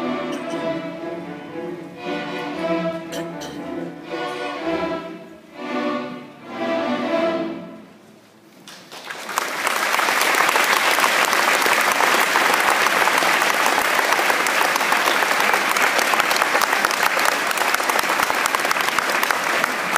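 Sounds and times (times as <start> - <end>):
string orchestra chords: 0.0 - 8.2
audience applause: 8.6 - 19.9.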